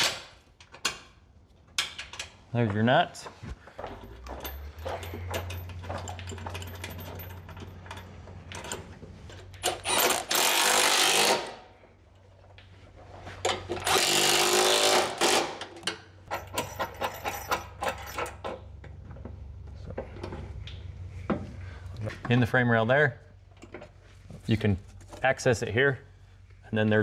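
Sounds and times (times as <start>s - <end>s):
parts clicking and clinking: 0.0s - 10.2s, 15.6s - 21.4s.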